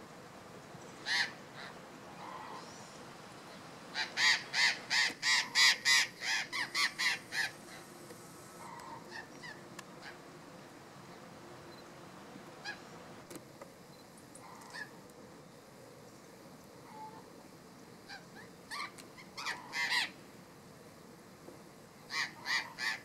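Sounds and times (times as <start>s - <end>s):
parrots squawking: 1.0s - 2.7s, 4.0s - 7.6s, 18.1s - 20.1s, 22.1s - 23.0s.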